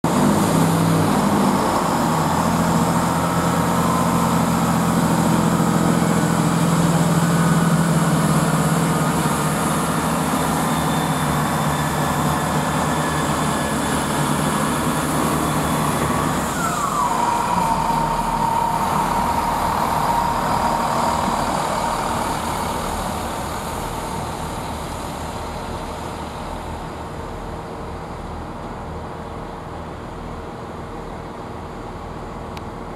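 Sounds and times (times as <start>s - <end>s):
diesel train engines under load: 0.0s - 32.9s
high whine dropping in pitch: 1.7s - 24.6s.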